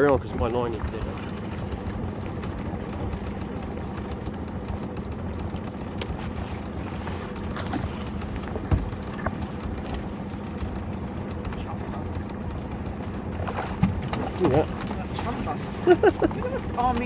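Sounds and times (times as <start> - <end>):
boat engine idling: 0.0 - 17.0.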